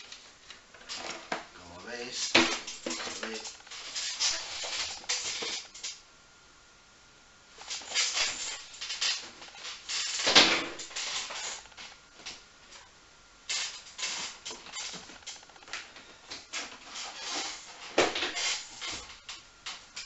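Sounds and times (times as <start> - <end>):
plastic boxes scraping and knocking: 2.1 - 5.9.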